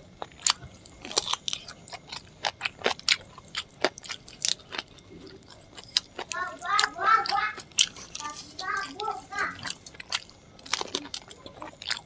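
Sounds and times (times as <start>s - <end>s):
chewing and lip smacking: 0.2s - 12.0s.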